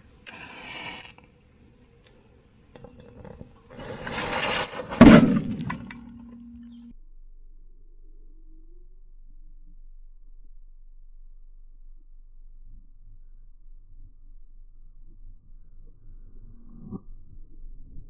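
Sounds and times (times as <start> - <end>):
lit fuse hissing and sputtering: 0.2 - 1.4
firecracker bang on steel: 4.9 - 5.9
low ringing tone: 5.8 - 17.9.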